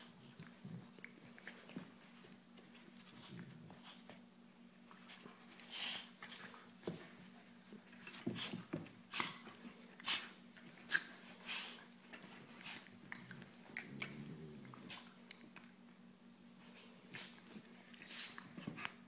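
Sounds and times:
dog growling: 13.1s - 15.2s.

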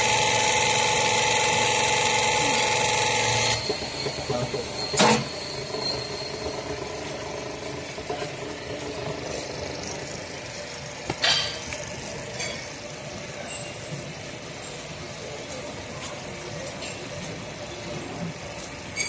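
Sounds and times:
hydraulic power pack humming: 0.0s - 13.4s.

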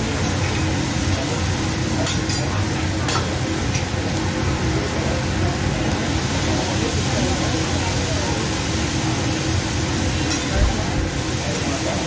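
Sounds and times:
beef sizzling on a griddle: 0.0s - 12.0s
metal spatula clinking on griddle: 2.0s - 2.5s, 3.1s - 3.9s, 10.2s - 10.6s.

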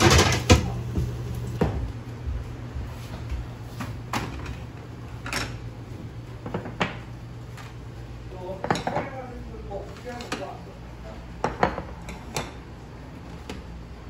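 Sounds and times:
steady low hum: 0.0s - 14.0s
ceramic bowls knocking on wooden table: 11.4s - 11.9s.

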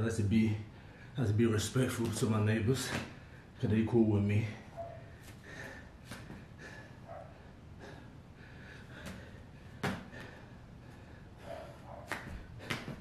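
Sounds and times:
man breathing hard: 0.7s - 1.2s, 5.0s - 13.0s.

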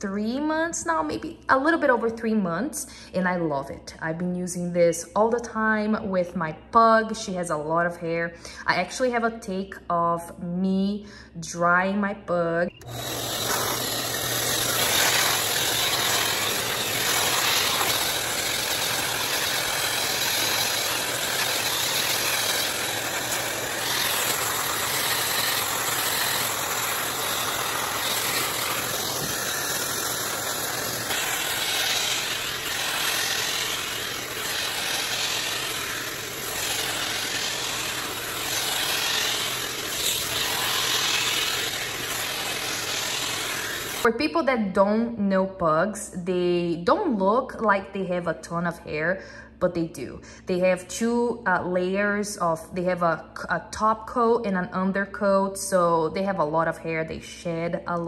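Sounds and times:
dog dryer air rush: 12.8s - 44.1s.

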